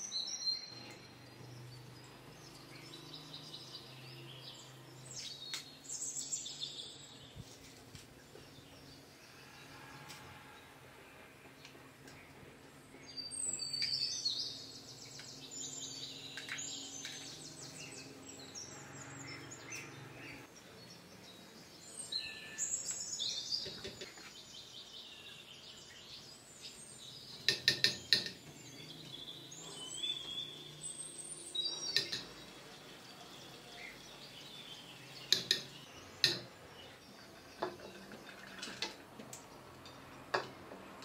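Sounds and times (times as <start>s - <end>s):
small birds trilling: 0.0s - 10.2s, 11.4s - 40.7s.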